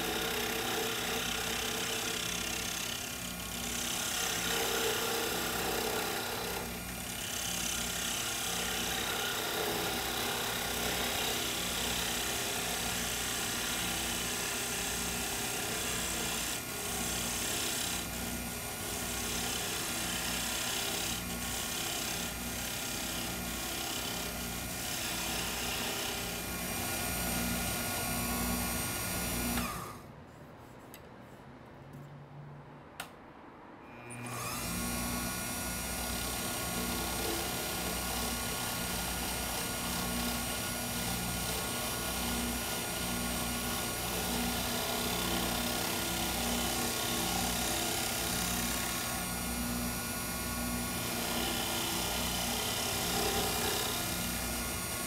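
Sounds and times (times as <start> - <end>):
turning tool shaving wood: 0.0 - 30.0, 34.2 - 55.0
wood lathe motor hum: 0.0 - 30.0, 34.1 - 55.0
click: 33.0 - 33.2.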